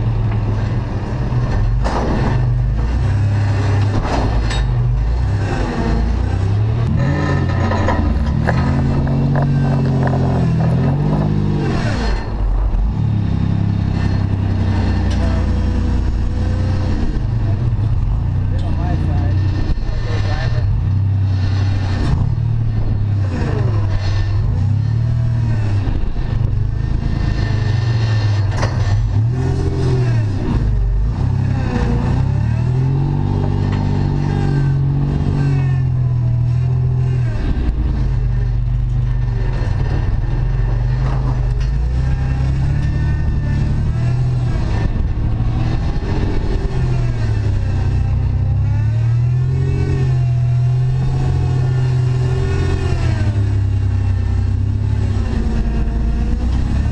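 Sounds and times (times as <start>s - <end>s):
knocks and clatter: 0.0s - 5.3s, 6.4s - 15.6s, 20.6s - 31.5s, 34.9s - 48.4s
car engine revving: 0.0s - 56.9s.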